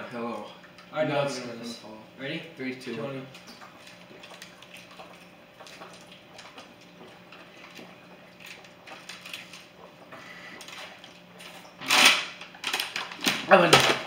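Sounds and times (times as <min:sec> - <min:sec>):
people gulping water: 0:03.3 - 0:11.8
plastic bottles crackling: 0:03.4 - 0:14.0.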